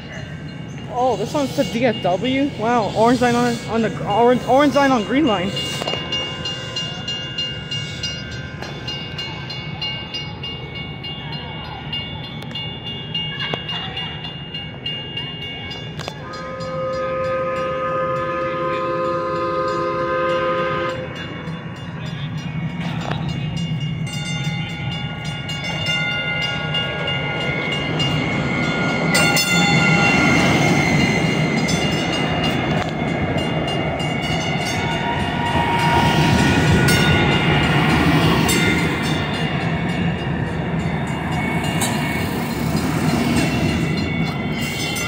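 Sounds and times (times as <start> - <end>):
steel wheels rumbling on rail: 0.0 - 45.0
train horn chord: 16.4 - 21.3.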